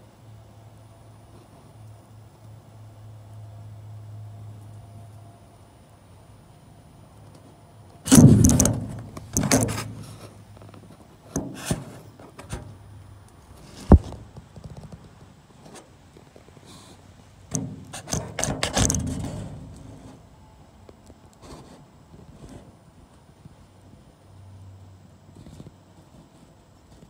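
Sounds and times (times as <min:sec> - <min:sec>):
camera knocking on metal: 0:08.1 - 0:10.2.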